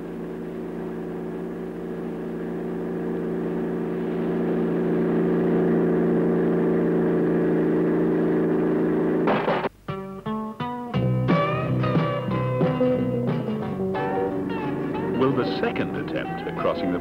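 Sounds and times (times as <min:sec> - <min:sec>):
vehicle engine running: 0:00.0 - 0:09.7.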